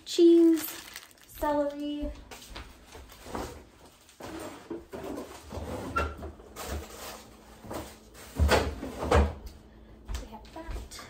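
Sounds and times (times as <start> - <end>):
groceries thudding on fridge shelves: 2.7 - 9.4.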